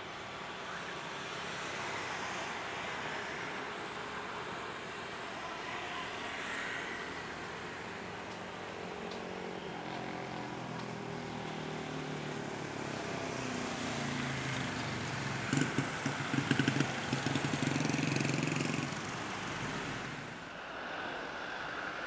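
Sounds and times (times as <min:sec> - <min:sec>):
jet engines rushing drone: 0:18.0 - 0:22.0.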